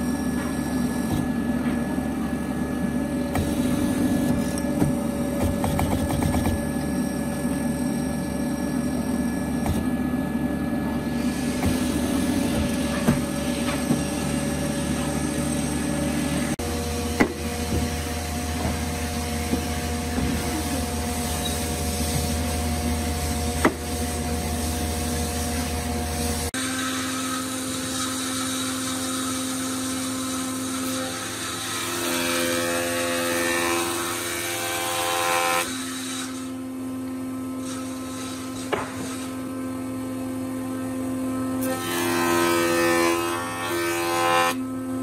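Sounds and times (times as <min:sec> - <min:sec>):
machine hum: 0:00.0 - 0:26.6
jointer cutting wood: 0:00.0 - 0:39.6, 0:40.6 - 0:44.7.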